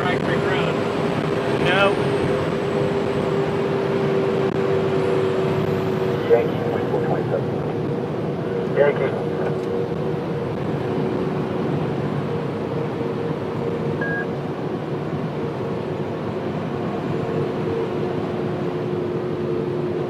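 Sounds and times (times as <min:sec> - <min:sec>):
truck engine and road noise: 0:00.0 - 0:20.0
short beep: 0:14.0 - 0:14.3.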